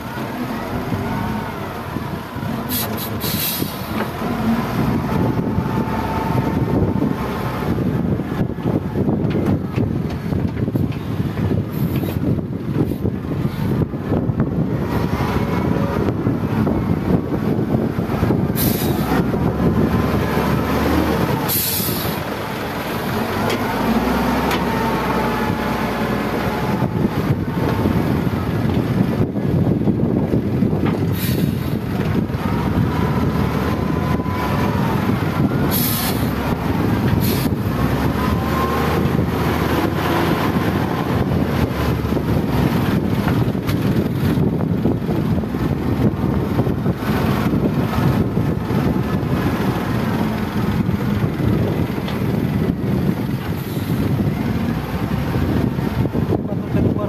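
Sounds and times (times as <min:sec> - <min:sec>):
diesel engine running: 0:00.0 - 0:57.0
short hisses: 0:02.7 - 0:04.0.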